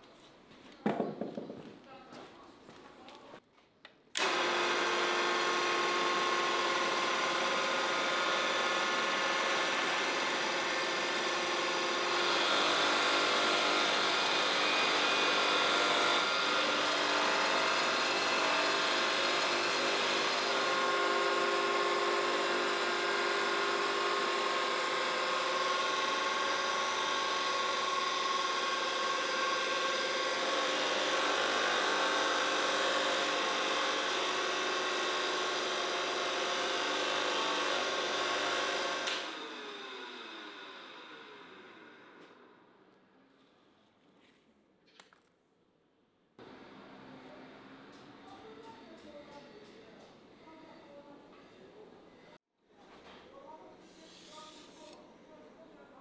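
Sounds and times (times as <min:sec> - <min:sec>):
power tool motor whining: 0:04.2 - 0:42.5.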